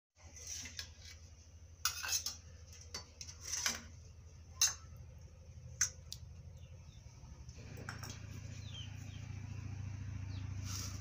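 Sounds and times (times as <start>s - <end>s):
spoon scraping steel plate: 0.2s - 4.9s.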